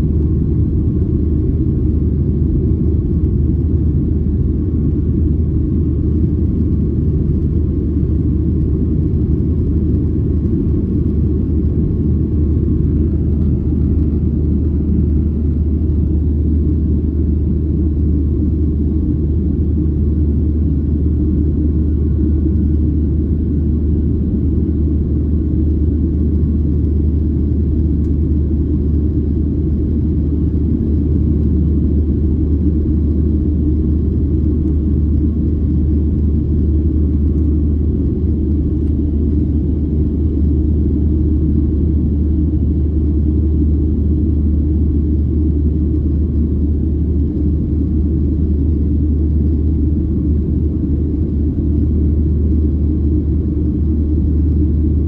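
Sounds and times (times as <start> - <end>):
jet engines roaring in cabin: 0.0 - 55.0.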